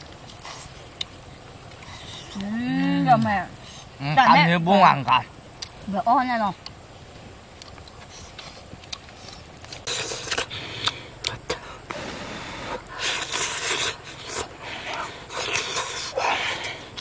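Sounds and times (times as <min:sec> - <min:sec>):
mouth clicks and smacks chewing: 0:00.0 - 0:02.5, 0:07.5 - 0:11.6, 0:12.9 - 0:17.0.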